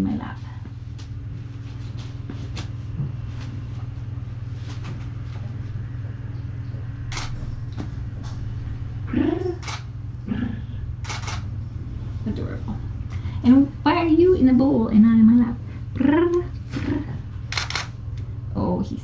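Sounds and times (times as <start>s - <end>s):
steady low rumble: 0.0s - 19.0s
phone camera shutter clicks: 17.5s - 17.9s.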